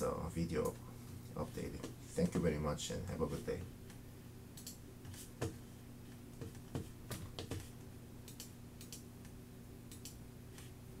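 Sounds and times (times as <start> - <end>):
low electrical hum: 0.0 - 11.0
computer clicks and taps: 6.4 - 10.7.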